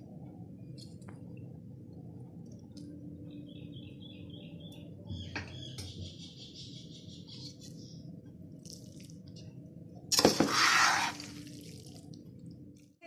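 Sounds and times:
low steady hum: 0.0 - 13.0
faint bird chirping: 3.1 - 8.1.

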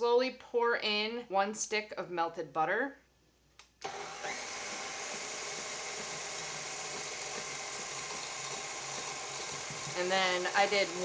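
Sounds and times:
mixer motor running: 3.8 - 11.0
whisk beating batter in metal bowl: 4.4 - 11.0.

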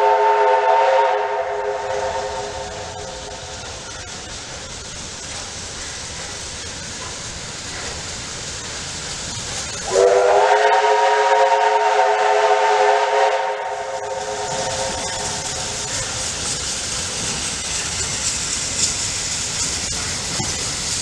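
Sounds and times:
steam locomotive whistle: 0.0 - 3.6, 9.8 - 16.2
steam hiss: 0.0 - 21.0
steam locomotive working: 0.0 - 21.0.

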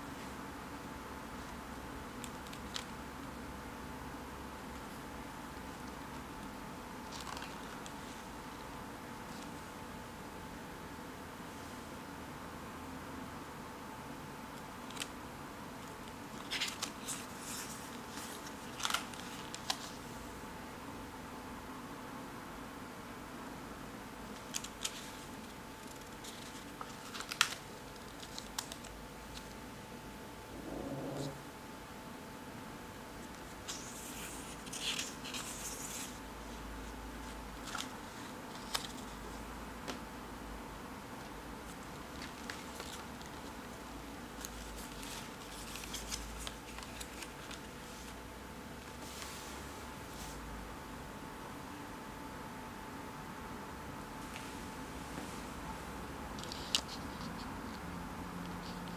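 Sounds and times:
steady faint hiss: 0.0 - 58.9
page turning: 7.0 - 8.2, 16.0 - 20.0, 24.4 - 29.6, 33.2 - 36.2, 37.2 - 39.2, 41.7 - 43.6, 44.4 - 48.2, 56.4 - 57.8
paper rustling and crackling: 7.0 - 8.3, 14.8 - 15.2, 16.0 - 20.1, 24.3 - 29.6, 33.2 - 40.0, 41.2 - 48.2, 56.4 - 57.8.

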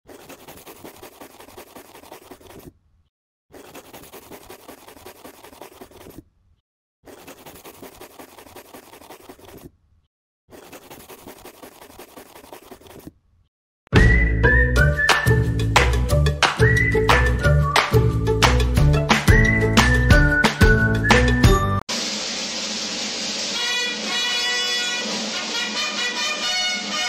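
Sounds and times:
pen scratching on paper: 0.0 - 2.8, 3.5 - 6.3, 7.0 - 9.8, 10.5 - 13.2
loud music: 23.5 - 27.0.

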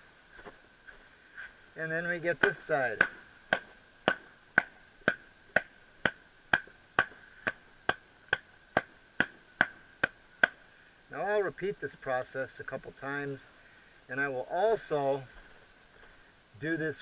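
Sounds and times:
futon beaten with wire hanger: 2.2 - 10.6.

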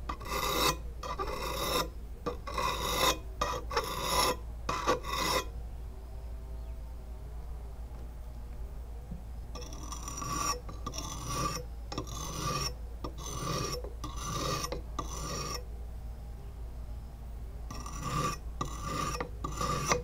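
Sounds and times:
sharpening stone rasping on blade: 0.1 - 5.5, 9.6 - 15.6, 17.7 - 20.0.

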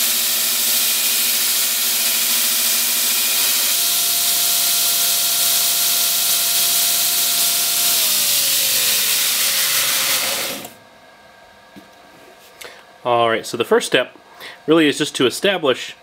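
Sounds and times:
belt grinder grinding steel blade: 0.0 - 10.8
motor whine winding down: 0.0 - 10.8.

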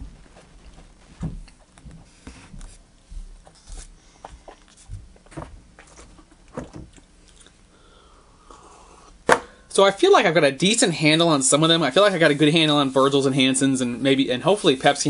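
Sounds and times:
person sipping: 7.2 - 9.2.

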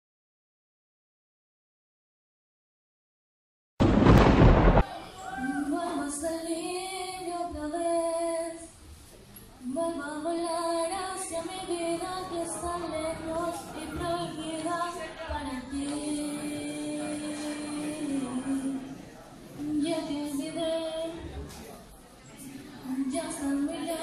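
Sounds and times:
girl singing into microphone: 5.0 - 8.8, 9.6 - 19.0, 19.6 - 21.4, 22.8 - 24.0.

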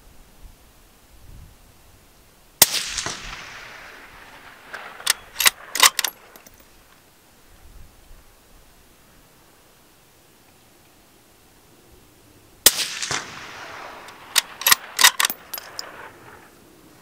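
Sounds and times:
rifle shot echoing: 2.6 - 6.4, 12.6 - 16.6
rifle bolt metallic clicks: 4.7 - 6.6, 14.0 - 16.2.

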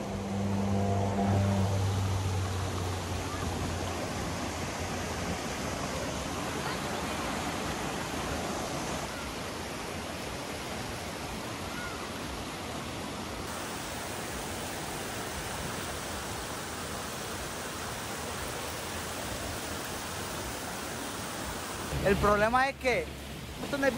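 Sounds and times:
low hum: 0.0 - 3.9
water rushing down waterfall: 0.0 - 23.9.

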